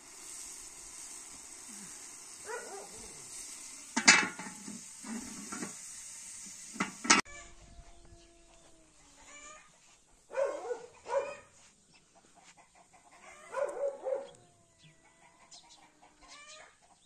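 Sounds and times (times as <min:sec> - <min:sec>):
rice sizzling in a pot: 0:00.0 - 0:07.3
metal lid clanking on pot: 0:04.0 - 0:05.8, 0:06.8 - 0:07.2
hen calling faintly: 0:07.2 - 0:11.6.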